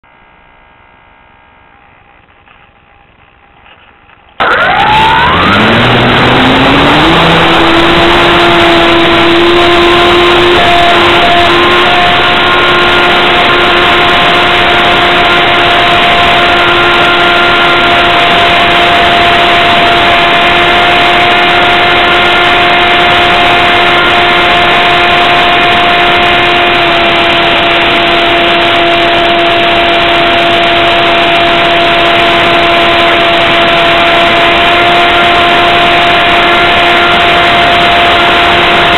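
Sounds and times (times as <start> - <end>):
model plane motor and propeller: 2.1 - 38.9.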